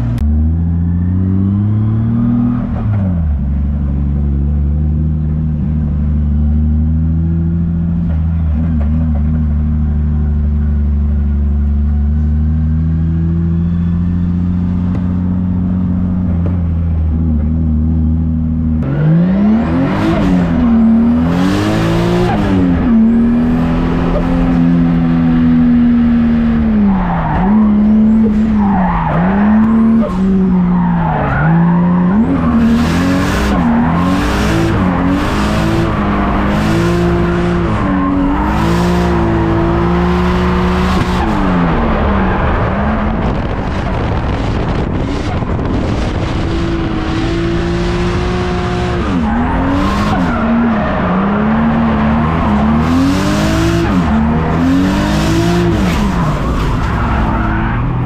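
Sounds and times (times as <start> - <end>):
car engine revving: 0.0 - 58.0.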